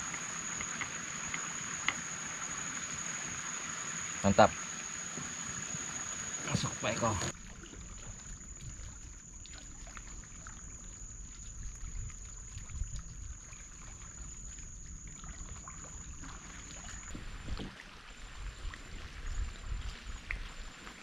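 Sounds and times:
water lapping against wooden hull: 0:04.3 - 0:21.0.

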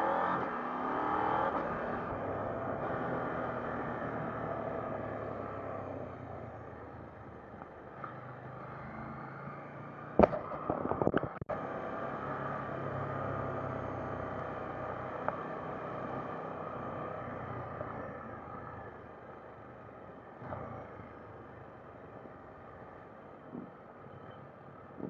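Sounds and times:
wind noise: 0:10.2 - 0:11.4
sharp knocks and clatter on camera: 0:10.2 - 0:11.5.

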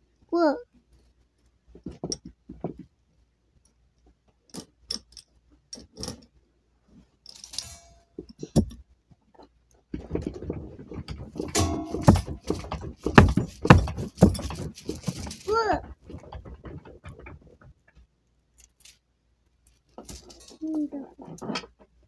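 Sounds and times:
rustling: 0:05.3 - 0:22.0
dense clatter: 0:09.9 - 0:18.0.

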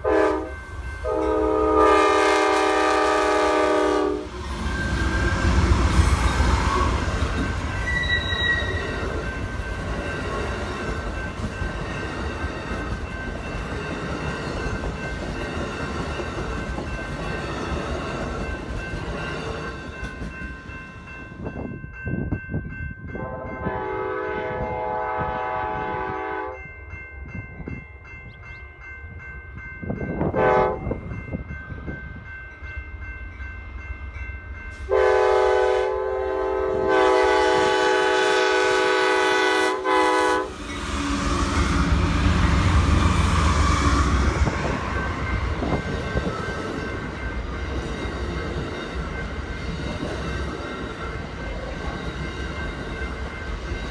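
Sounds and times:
train horn blasts: 0:00.0 - 0:05.7, 0:23.2 - 0:26.7, 0:30.2 - 0:31.0, 0:34.8 - 0:44.9
train wheels rumbling on rails: 0:00.0 - 0:23.8, 0:34.5 - 0:53.9.

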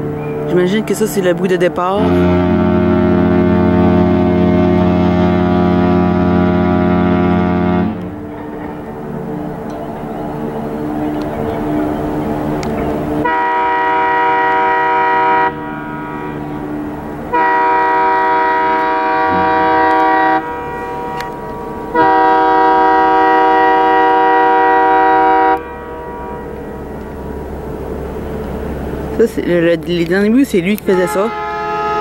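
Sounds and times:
boat horn blasts: 0:01.8 - 0:08.3, 0:13.1 - 0:27.3, 0:30.8 - 0:32.0.

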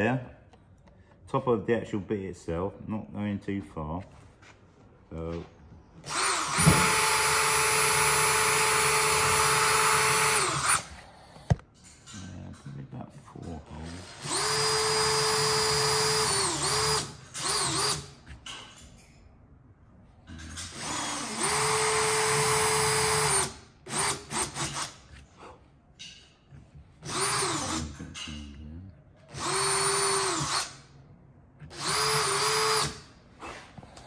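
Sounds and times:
drill trigger blips: 0:06.0 - 0:10.9, 0:29.3 - 0:30.8, 0:31.7 - 0:33.0
cordless drill whining: 0:06.0 - 0:11.6, 0:14.0 - 0:18.3, 0:20.7 - 0:25.2, 0:27.0 - 0:28.1, 0:29.3 - 0:30.8, 0:31.6 - 0:33.1.

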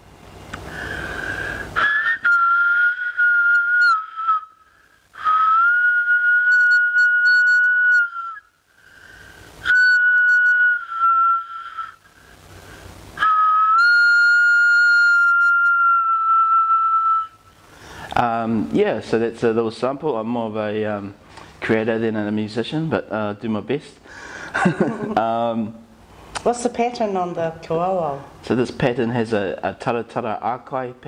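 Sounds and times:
short breaths: 0:00.6 - 0:01.9, 0:04.6 - 0:05.4, 0:08.7 - 0:09.6, 0:12.0 - 0:13.1, 0:17.6 - 0:18.2, 0:24.0 - 0:24.6
breathy flute notes: 0:00.6 - 0:18.3.

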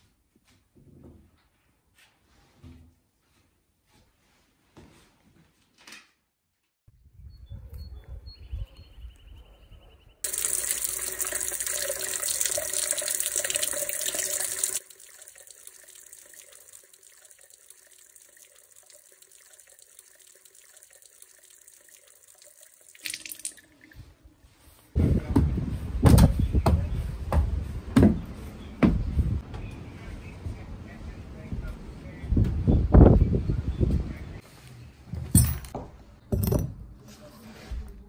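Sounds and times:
running water splashing: 0:10.2 - 0:24.1.

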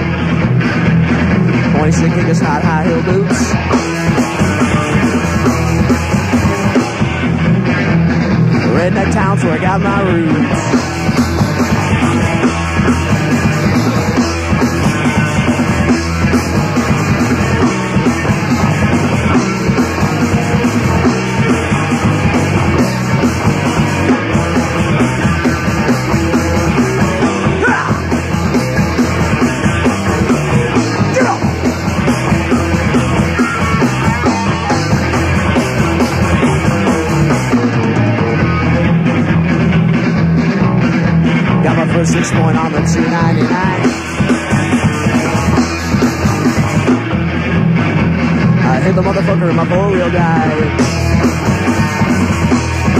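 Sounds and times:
punk rock band playing: 0:00.0 - 0:52.9.

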